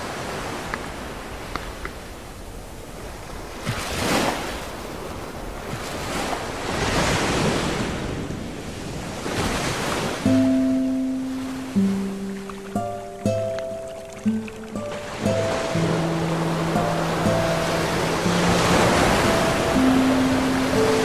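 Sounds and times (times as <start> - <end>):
wind on microphone: 0.0 - 10.3
music with held notes: 10.3 - 21.0
sea water sloshing: 11.2 - 21.0.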